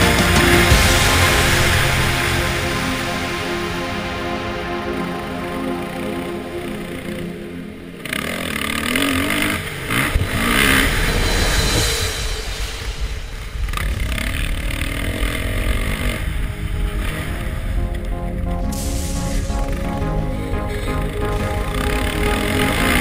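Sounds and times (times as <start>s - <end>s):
track noise: 0.0s - 14.4s, 15.6s - 23.0s
wind: 0.7s - 17.9s.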